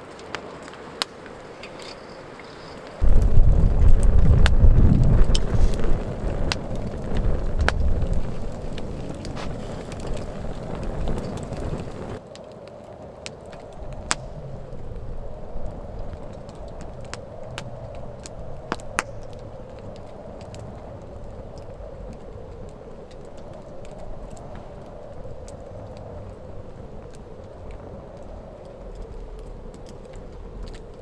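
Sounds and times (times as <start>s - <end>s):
wood fire crackling and popping: 0.0s - 31.0s
loud low rumble: 3.0s - 9.4s, 13.8s - 19.2s.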